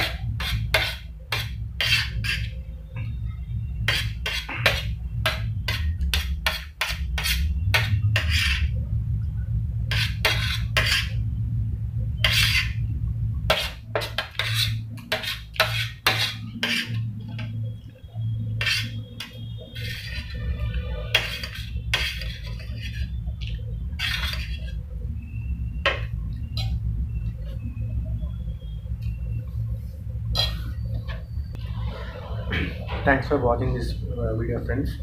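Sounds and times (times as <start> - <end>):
spoon scraping metal plate: 0.0 - 2.6, 3.8 - 8.7, 9.9 - 11.2, 12.2 - 12.8, 13.5 - 17.6, 18.5 - 24.8, 30.3 - 31.2
low hum: 0.0 - 35.0.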